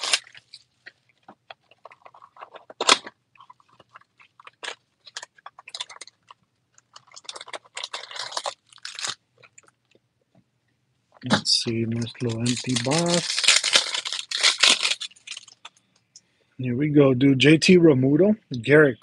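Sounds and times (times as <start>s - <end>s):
cardboard ripping: 0.0s - 0.5s.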